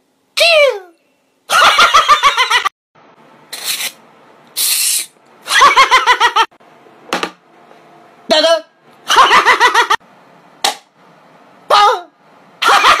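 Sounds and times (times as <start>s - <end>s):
man laughing loudly: 1.5s - 2.7s, 5.5s - 6.5s, 9.1s - 10.0s, 12.6s - 13.0s
short hissing burst: 3.5s - 4.0s, 4.6s - 5.2s.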